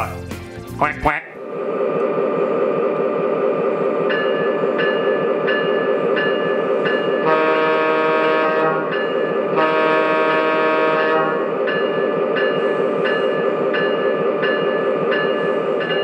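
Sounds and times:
model train rumbling: 0.7s - 16.0s
diesel air horn: 7.2s - 8.9s, 9.5s - 11.5s.

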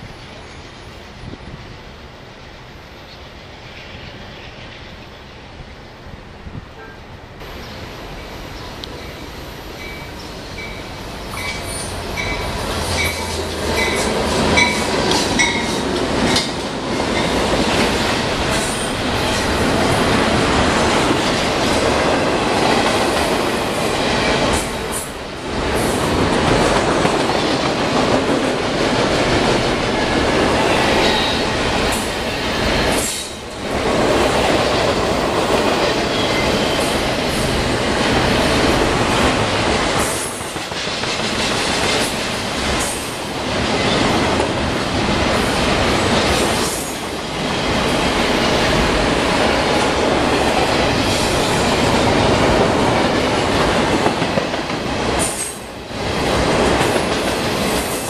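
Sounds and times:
freight train wheels on rail: 0.0s - 58.0s
rattling train cars: 6.8s - 58.0s.

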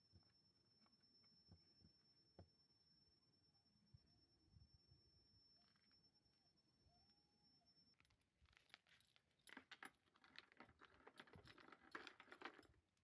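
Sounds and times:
small clicks and light rattling: 8.0s - 13.0s.

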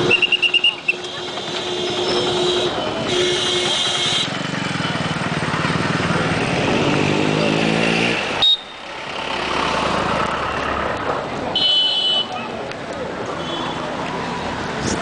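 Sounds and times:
motorcycle engine approaching: 1.4s - 11.2s.

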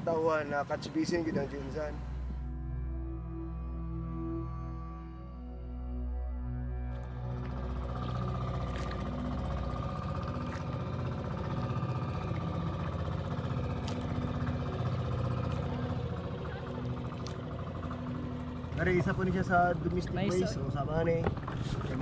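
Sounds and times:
small engine running: 6.9s - 22.0s.

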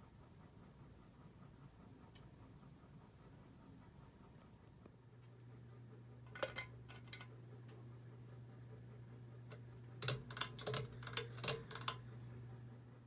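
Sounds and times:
fan motor hum: 0.0s - 13.0s.

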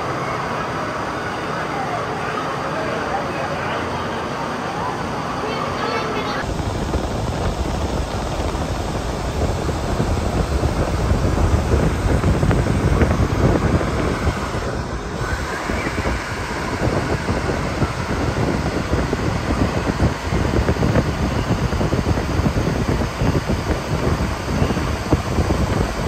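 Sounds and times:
wind buffeting microphone: 6.4s - 26.0s.

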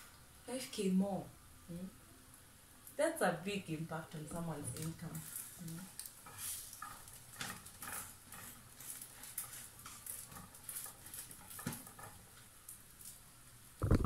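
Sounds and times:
spatula scraping frying pan: 4.8s - 12.5s.

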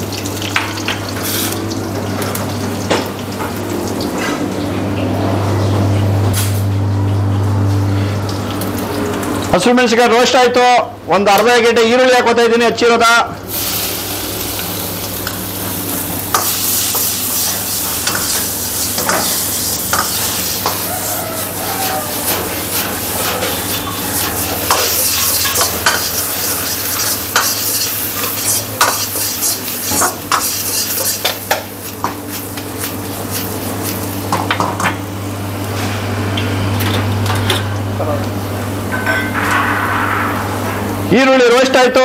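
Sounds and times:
onions sizzling in oil: 0.0s - 4.0s, 13.5s - 35.8s
metal ladle scraping wok: 16.3s - 31.2s
steady low hum: 35.2s - 41.2s.

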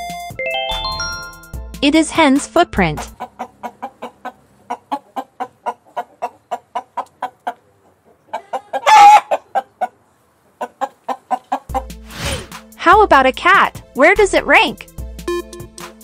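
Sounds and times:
hens clucking: 3.0s - 12.0s
hen squawk: 8.3s - 9.7s.

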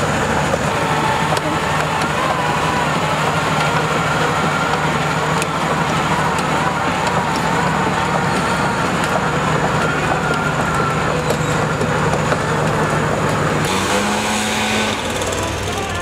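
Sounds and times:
crawler tracks clanking: 0.0s - 16.0s
diesel engine running: 0.0s - 16.0s.

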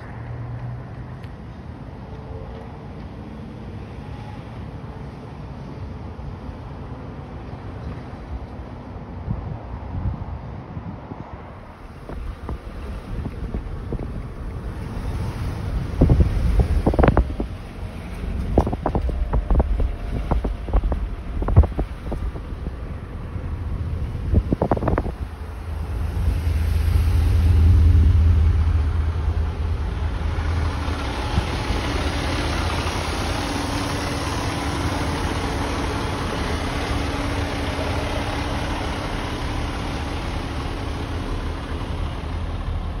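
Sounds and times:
wind buffeting microphone: 9.2s - 43.0s
fire engine diesel idling: 11.6s - 43.0s.

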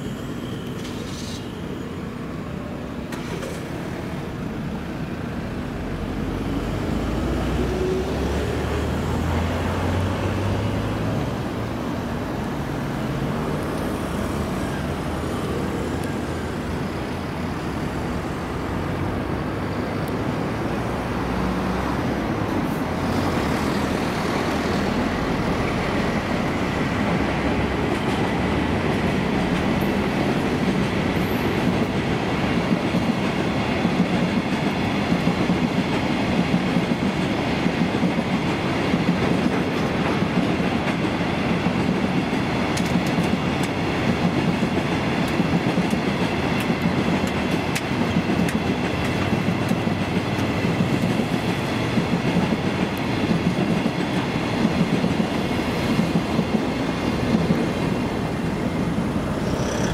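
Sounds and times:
rising whine: 59.0s - 59.9s.

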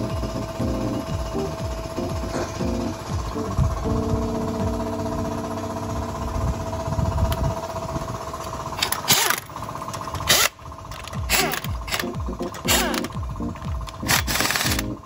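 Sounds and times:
impact wrench bursts: 6.8s - 15.0s.

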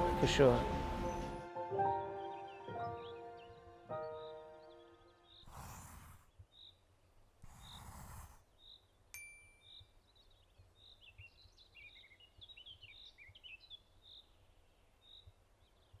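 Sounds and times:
bell-like ding: 9.2s - 9.8s.

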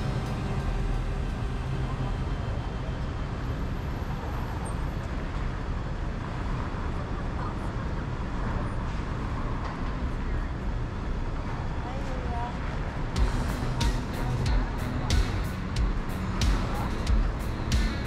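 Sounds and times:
car engine and tyre rumble: 0.0s - 18.0s.

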